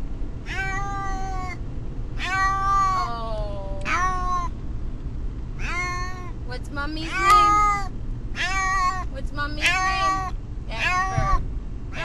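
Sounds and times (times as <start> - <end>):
steady low rumble: 0.0 - 12.0
cat meowing in distress: 0.5 - 1.6, 2.2 - 4.5, 5.6 - 6.4, 7.1 - 12.0.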